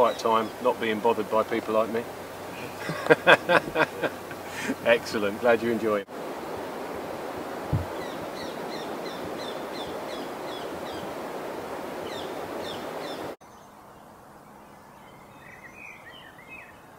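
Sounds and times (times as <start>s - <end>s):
rushing stream water: 0.0s - 13.4s.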